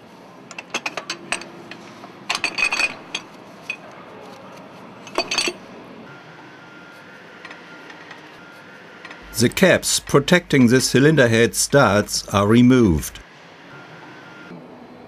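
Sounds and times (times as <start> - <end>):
metal brackets clinking: 5.1 - 5.6.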